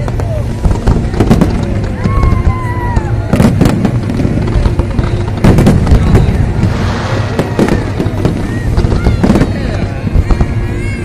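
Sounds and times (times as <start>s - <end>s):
fireworks bursting with loud bangs: 0.0s - 11.0s.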